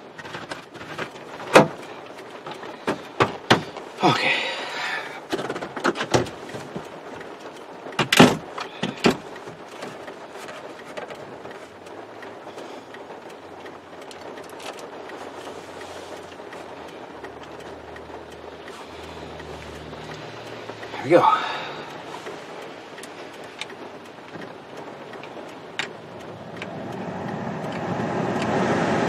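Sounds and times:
clicks and knocks in car cab: 0.0 - 3.9, 5.2 - 6.9, 7.9 - 11.6
steady rushing noise: 0.0 - 29.0.

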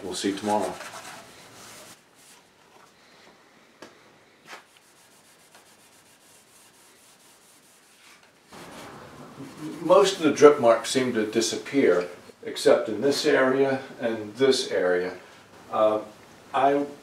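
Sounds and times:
steel wool rubbing on wood: 0.3 - 2.4, 4.5 - 10.2.

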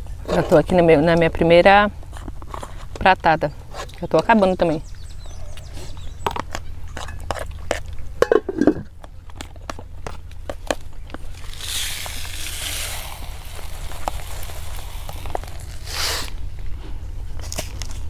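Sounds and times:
flour pouring onto a plate: 11.5 - 16.3.

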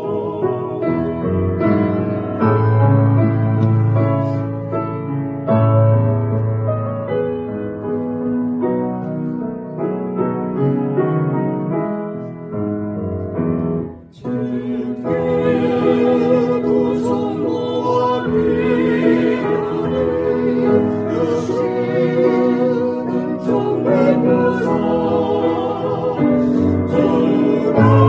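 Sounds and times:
vocal quartet singing a hymn: 0.0 - 4.6, 14.0 - 28.0
piano playing: 0.0 - 28.0.

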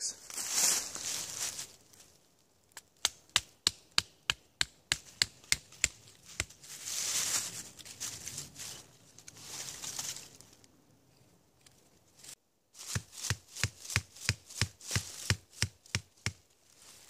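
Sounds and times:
rustling in dry leaves: 0.0 - 2.4, 6.0 - 10.7, 12.1 - 15.6, 16.5 - 17.0
hatchet chopping wood: 3.0 - 6.5, 12.9 - 16.4.

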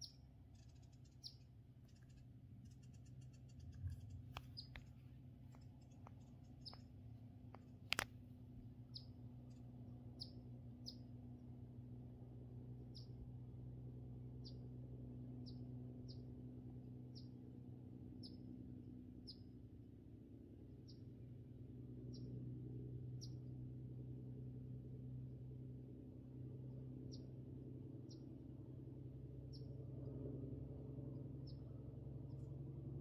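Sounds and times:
small bird chip notes: 0.0 - 5.0
steady low hum: 0.0 - 33.0.

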